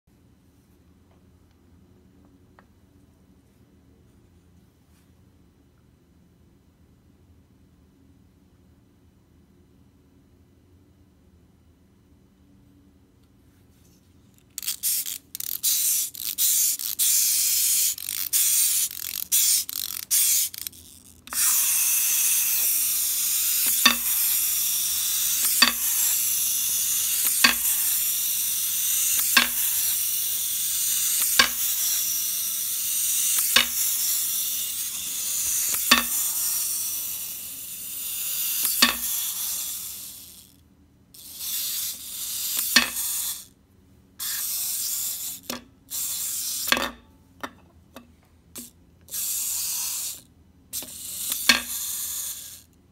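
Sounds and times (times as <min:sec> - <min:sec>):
wind-up toy motor whirring: 0:14.3 - 0:43.6, 0:44.2 - 0:47.0, 0:48.6 - 0:52.8
toy clacking on glass: 0:14.6 - 0:32.2, 0:33.0 - 0:37.0, 0:38.3 - 0:40.1, 0:41.4 - 0:43.5, 0:50.8 - 0:52.5.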